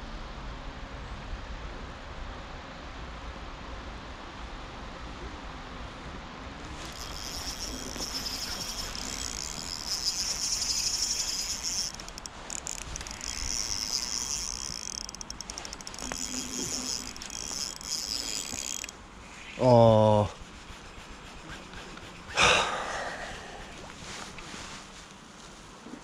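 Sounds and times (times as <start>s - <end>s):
fishing reel whirring: 6.6s - 19.0s, 20.5s - 24.0s.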